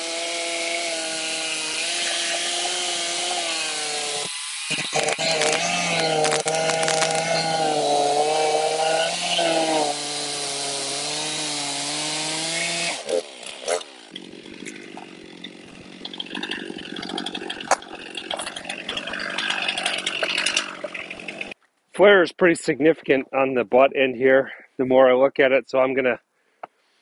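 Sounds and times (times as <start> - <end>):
chainsaw cutting log: 0.0 - 21.6
wood knocking and scraping: 4.7 - 7.4.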